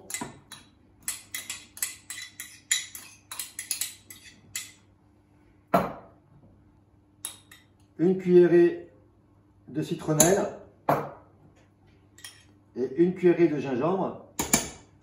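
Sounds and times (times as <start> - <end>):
metal spoon clinking on ceramic: 0.0 - 4.8, 7.2 - 7.8, 12.2 - 12.5.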